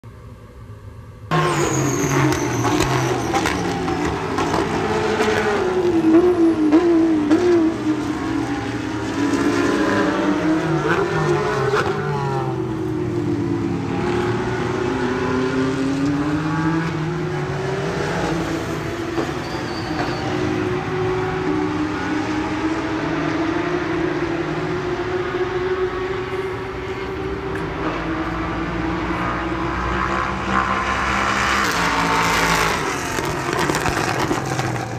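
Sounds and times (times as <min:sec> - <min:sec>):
race cars passing: 0:01.3 - 0:34.9.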